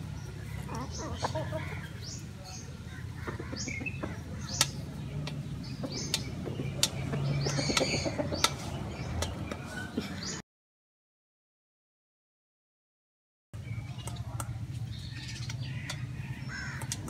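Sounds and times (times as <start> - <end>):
small birds chirping: 0.0 - 10.4, 13.6 - 17.0
beaks pecking metal bowl: 13.8 - 17.0.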